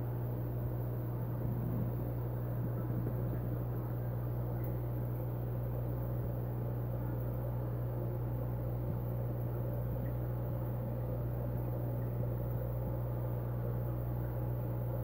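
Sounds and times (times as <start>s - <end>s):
aquarium equipment hum: 0.0s - 15.0s
water bubbling: 1.2s - 6.1s.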